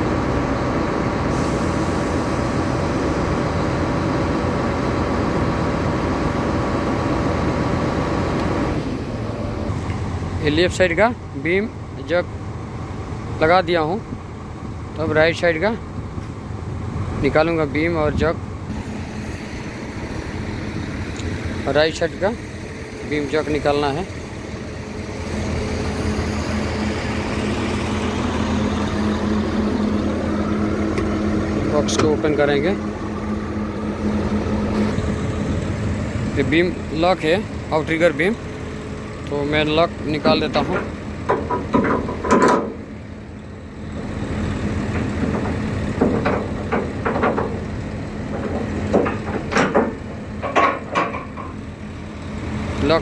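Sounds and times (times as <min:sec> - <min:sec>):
diesel engine idling: 0:00.0 - 0:53.0
metal pin and chain clanking: 0:40.6 - 0:42.8, 0:48.3 - 0:51.6.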